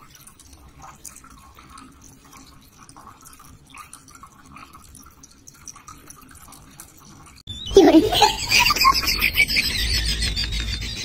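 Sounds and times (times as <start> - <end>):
water dripping in plastic bottle: 0.0 - 7.4.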